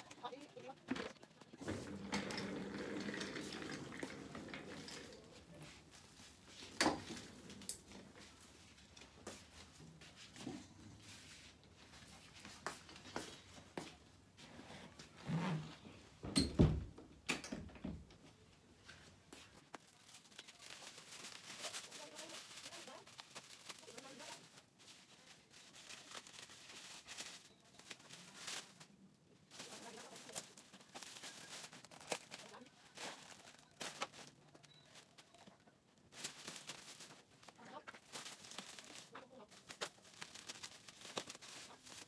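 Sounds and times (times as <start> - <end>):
metal chair scraping floor: 1.6 - 5.3.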